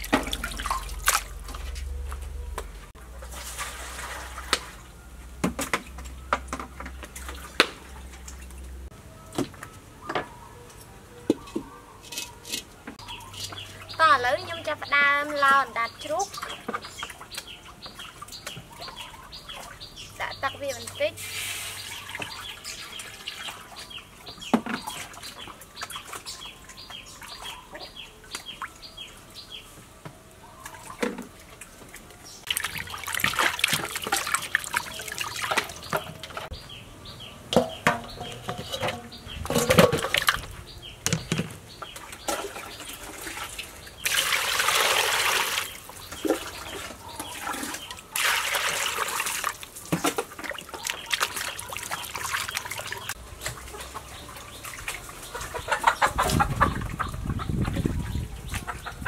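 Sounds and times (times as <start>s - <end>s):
water pouring: 0.0s - 1.8s, 3.2s - 4.9s, 32.3s - 36.5s, 42.0s - 55.4s
water splashing in metal basin: 0.0s - 2.2s, 3.0s - 4.9s, 30.6s - 36.5s, 37.5s - 40.6s, 41.2s - 57.1s.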